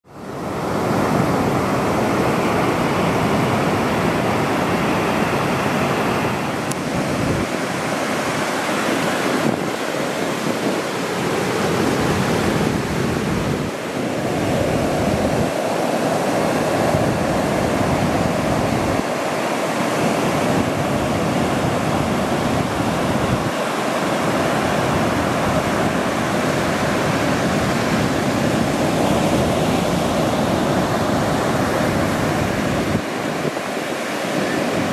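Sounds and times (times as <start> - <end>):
waves breaking on beach: 0.0 - 34.9.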